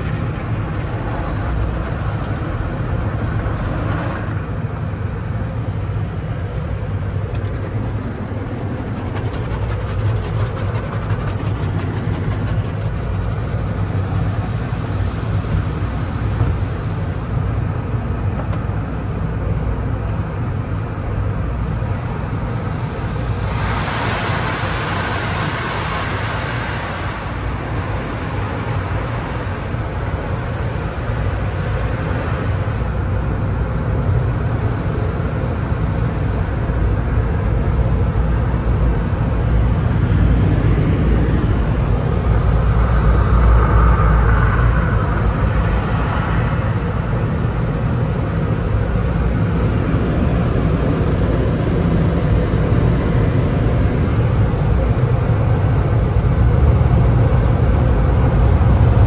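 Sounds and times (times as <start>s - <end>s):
car wash equipment: 0.0s - 59.0s
steady low rumble: 0.0s - 59.0s
water spray hissing on car: 4.4s - 21.0s, 22.2s - 38.2s
air dryer blowers: 22.5s - 33.2s.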